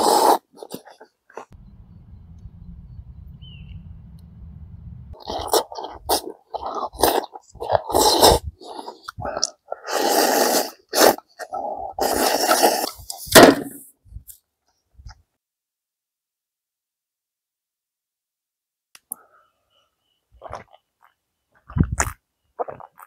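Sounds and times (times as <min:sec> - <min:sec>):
faint low rumble: 0:01.6 - 0:05.2
man slurping and chewing: 0:05.2 - 0:13.1.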